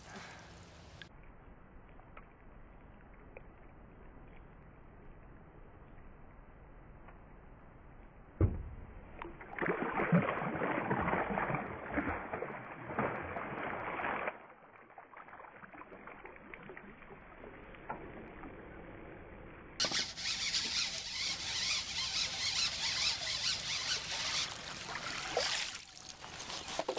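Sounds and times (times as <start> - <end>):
fish splashing in water: 9.2 - 18.8, 19.8 - 26.9.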